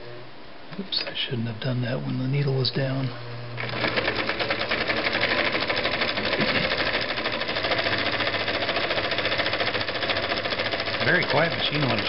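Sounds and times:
sewing machine clicking: 0:03.6 - 0:12.0.

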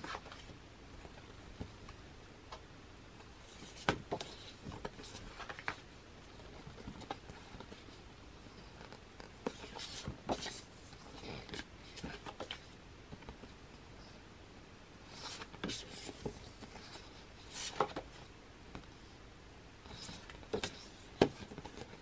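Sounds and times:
pages turning and rustling: 0:03.4 - 0:08.0, 0:08.7 - 0:13.5, 0:15.1 - 0:18.3, 0:19.9 - 0:22.0.

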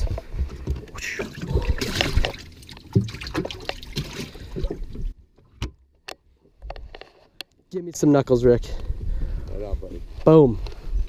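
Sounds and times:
water splashing and sloshing: 0:00.0 - 0:07.1.

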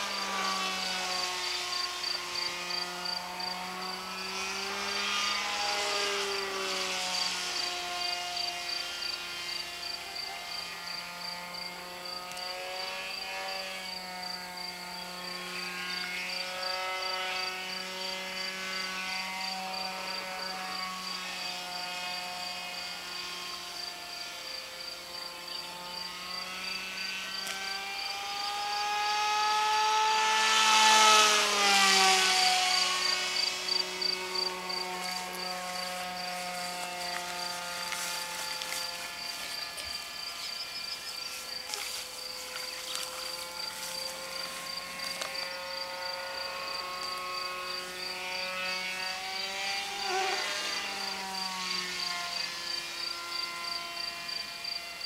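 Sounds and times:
model jet electric motor whining: 0:00.0 - 0:55.0.

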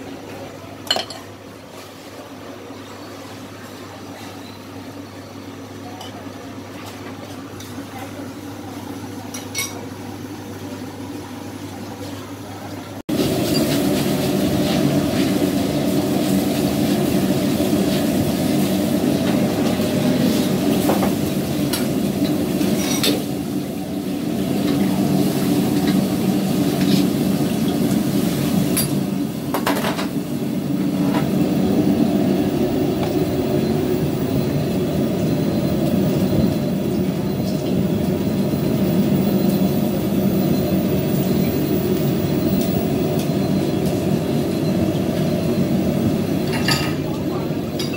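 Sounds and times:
gas burner rushing: 0:13.1 - 0:47.9.

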